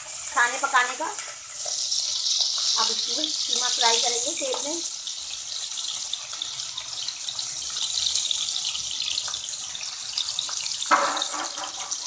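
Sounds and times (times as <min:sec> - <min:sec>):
meat sizzling in oil: 0:00.0 - 0:12.0.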